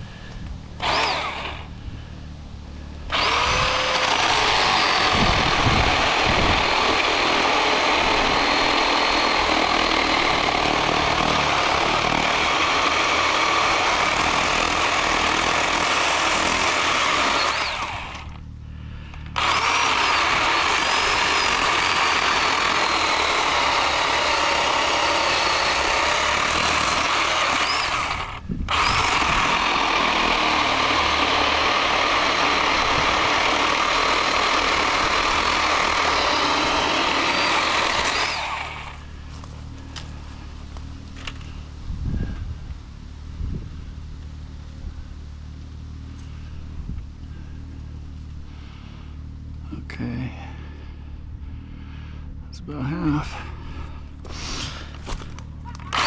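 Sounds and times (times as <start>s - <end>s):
electric chainsaw cutting wood: 0.8s - 1.8s, 3.0s - 18.5s, 19.1s - 40.2s, 54.2s - 56.0s.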